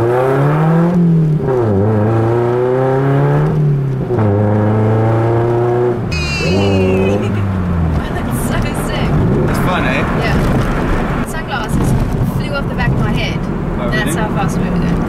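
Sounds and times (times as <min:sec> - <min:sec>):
car engine revving through gears: 0:00.0 - 0:06.2.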